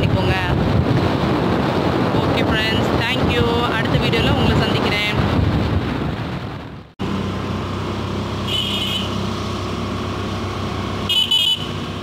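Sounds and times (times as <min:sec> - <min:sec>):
vehicle engine running: 0:07.0 - 0:12.0
high-pitched horn toot: 0:08.5 - 0:09.2.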